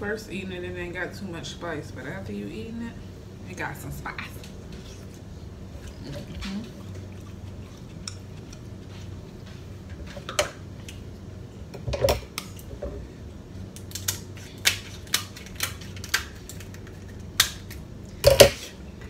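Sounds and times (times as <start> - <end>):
crab shells cracking: 13.7 - 18.5.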